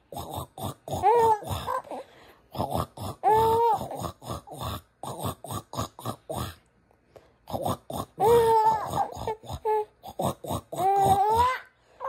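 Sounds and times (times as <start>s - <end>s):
baby squealing: 8.2s - 9.9s, 10.8s - 11.7s.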